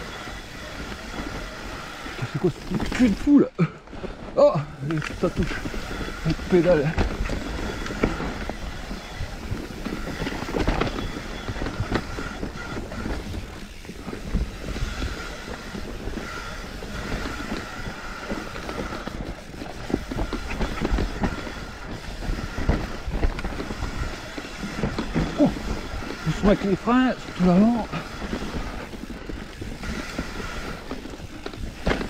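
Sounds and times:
bike rattling and knocking: 0.0s - 32.0s
tyres rolling over dirt: 0.0s - 32.0s
wind rumble on microphone: 4.1s - 32.0s.

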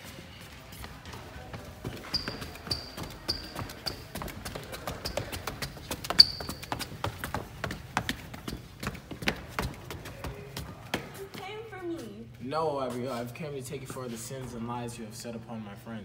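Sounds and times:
footsteps on stairs: 0.0s - 12.1s
footsteps on hard floor: 0.0s - 12.2s
rubber soles squeaking: 0.5s - 11.7s.

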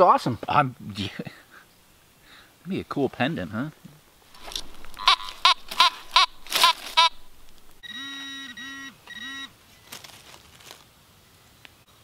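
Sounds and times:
metal detector chirps: 4.3s - 9.5s
metal detector steady tones: 4.3s - 9.5s.

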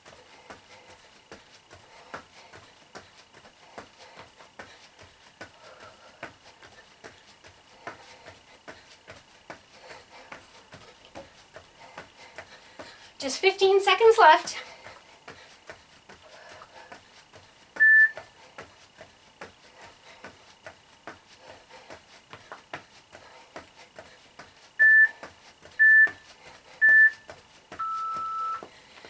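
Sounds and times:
soft footfalls on foam mats: 0.0s - 29.0s
interval timer beeps: 17.8s - 18.2s, 24.8s - 25.2s, 25.8s - 26.2s, 26.8s - 28.7s.

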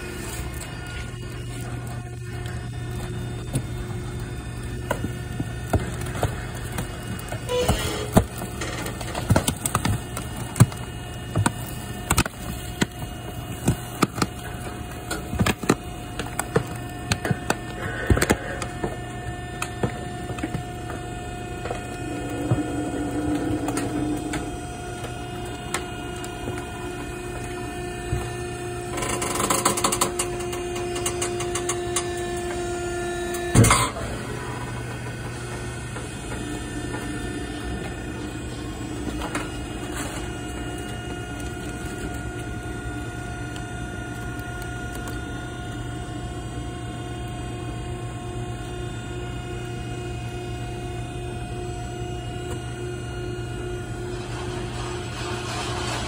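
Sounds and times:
hydraulic motor hum: 0.0s - 44.2s.

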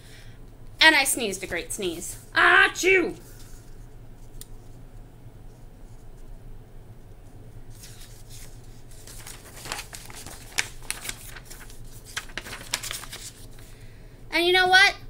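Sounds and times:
low room hum: 0.0s - 15.0s
book pages rustling and crinkling: 7.7s - 13.7s.

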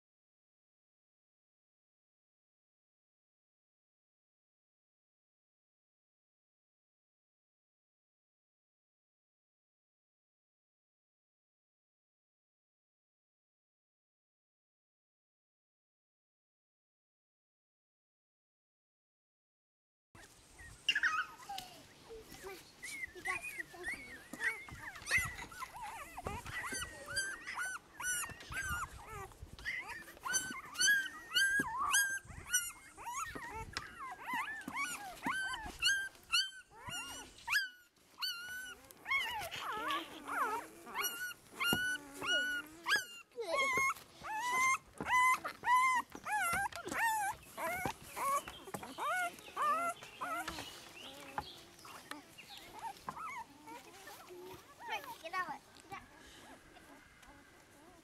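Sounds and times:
puppies squealing and whimpering: 20.2s - 58.0s.

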